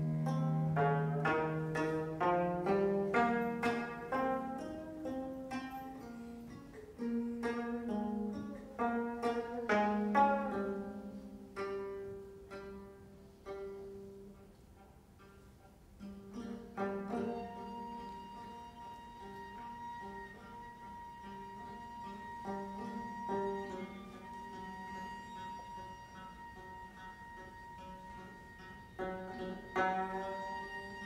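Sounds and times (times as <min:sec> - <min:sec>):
low cello notes: 0:00.0 - 0:31.0
plucked zither notes: 0:00.0 - 0:31.0.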